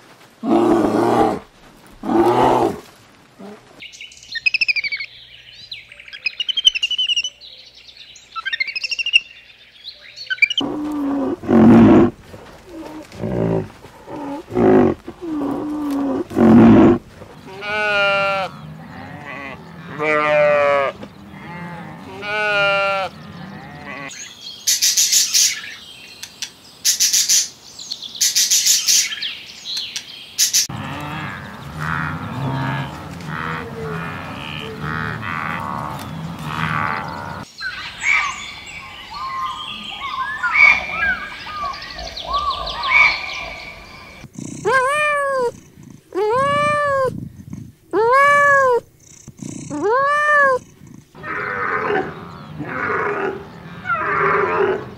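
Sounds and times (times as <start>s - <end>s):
short low animal calls: 10.6s - 24.1s
sheep bleating: 12.8s - 24.2s, 30.7s - 37.5s
high twittering chirps: 36.8s - 44.2s.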